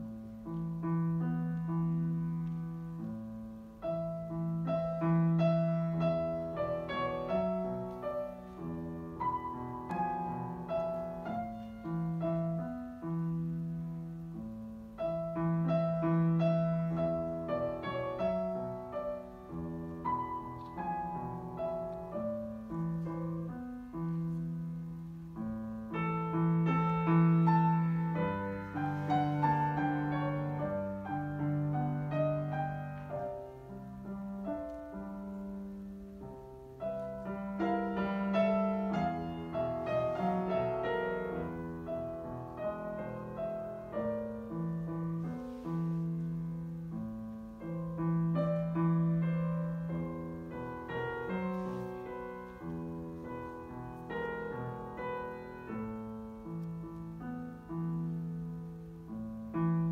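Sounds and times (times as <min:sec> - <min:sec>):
grand piano classical piece: 0:00.0 - 0:59.9.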